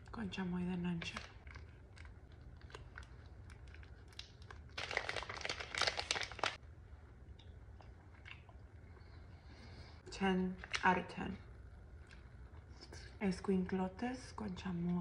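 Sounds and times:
chewing candy: 1.0 - 6.6
foil pouch crinkling: 2.6 - 6.6.

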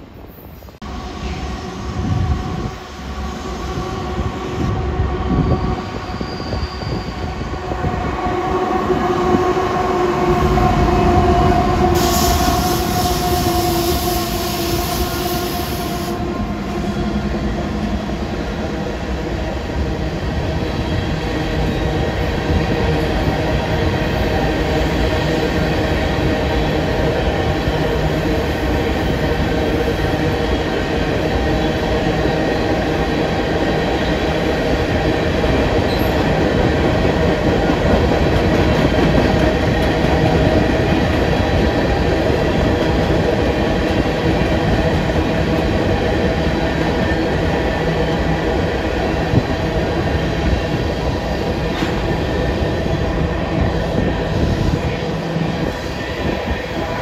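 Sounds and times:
train wheels rumbling on rails: 0.8 - 57.0
wheel squeal: 5.9 - 7.3.

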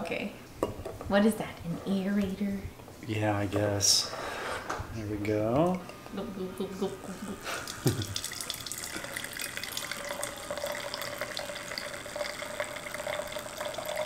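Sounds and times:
wine pouring into a glass: 7.6 - 14.0
ringing tone from filling glass: 8.2 - 14.0.

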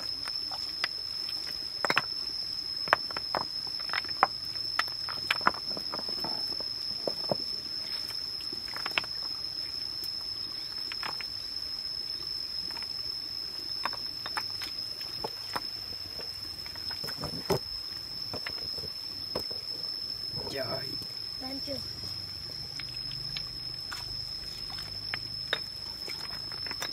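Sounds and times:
high insect whine: 0.0 - 26.9
stones knocking together: 1.8 - 2.2, 2.8 - 7.5, 13.8 - 19.6, 22.7 - 26.9.

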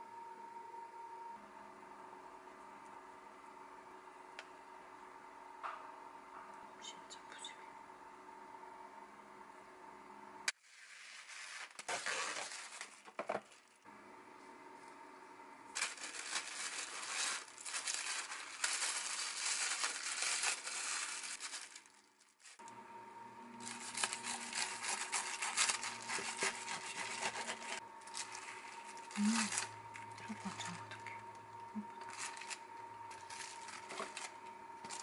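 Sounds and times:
cling film crinkling: 10.6 - 13.8, 15.7 - 22.7, 23.6 - 35.0
knife cutting wrapped sandwich: 23.6 - 28.5.

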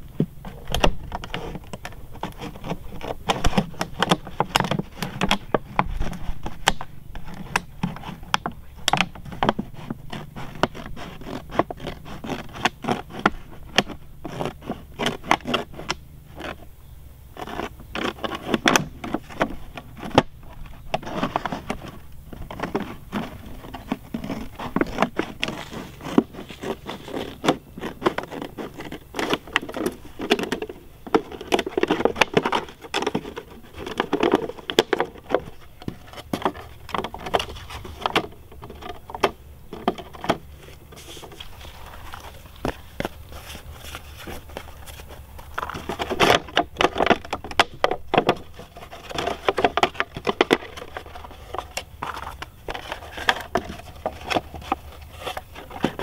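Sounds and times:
plastic bottle crinkling: 17.3 - 56.0.

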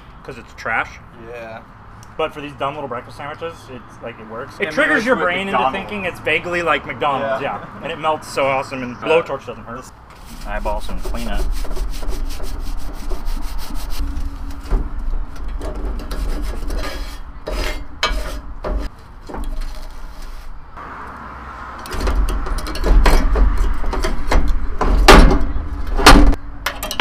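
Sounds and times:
paper towel rubbing griddle: 10.2 - 14.7.

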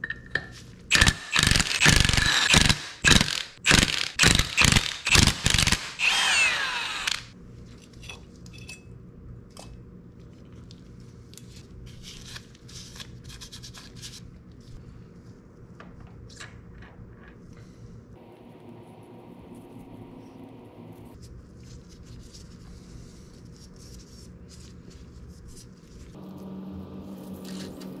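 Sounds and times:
small metal parts clicking: 0.9 - 6.1
tool rasping strokes: 0.9 - 7.3.

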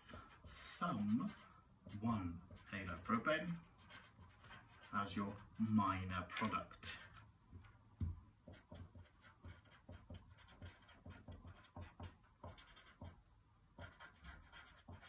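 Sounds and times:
marker writing on paper: 0.0 - 6.0, 8.4 - 13.2, 13.8 - 15.0.

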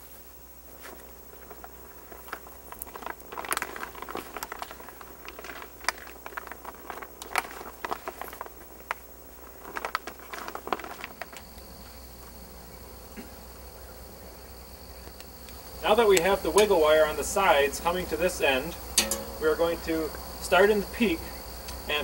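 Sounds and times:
plastic film crinkling and rustling: 0.7 - 12.5
faint high whine: 6.8 - 22.0.

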